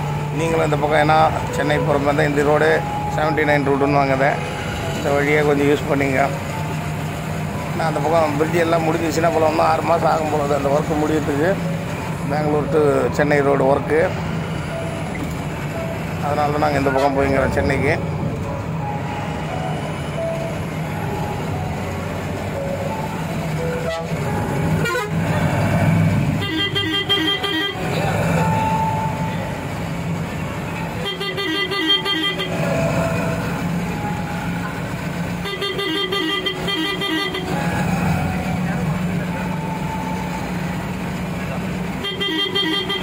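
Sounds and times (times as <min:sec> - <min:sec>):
engine drone and road noise: 0:00.0 - 0:43.0
vehicle horn pulsing blasts: 0:23.8 - 0:25.2, 0:26.4 - 0:28.0, 0:31.0 - 0:32.7, 0:35.4 - 0:37.6, 0:42.0 - 0:43.0.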